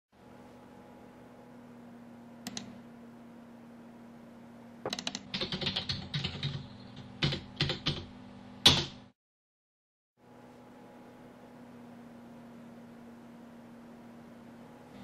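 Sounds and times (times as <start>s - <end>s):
typing on a computer keyboard: 4.9s - 8.0s.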